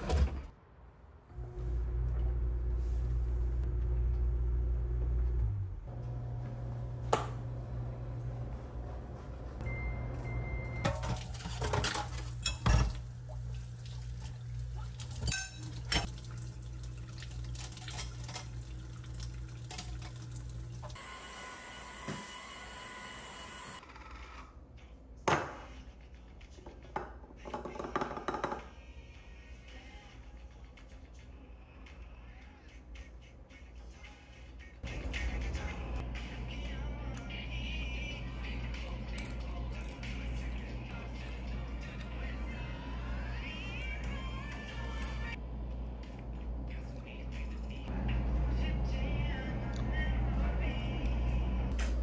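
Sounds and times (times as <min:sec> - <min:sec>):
low steady hum: 0:01.2 - 0:23.8, 0:34.8 - 0:52.0
appliance electronic beep: 0:09.6 - 0:11.0, 0:21.0 - 0:23.8
kitchen clatter: 0:10.8 - 0:13.1, 0:15.0 - 0:16.2, 0:17.4 - 0:18.7.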